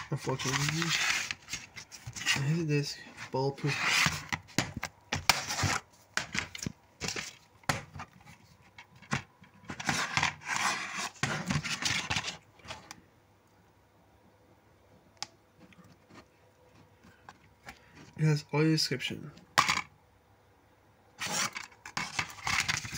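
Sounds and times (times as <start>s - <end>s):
plastic case scraping: 0.0s - 12.9s, 21.2s - 22.9s.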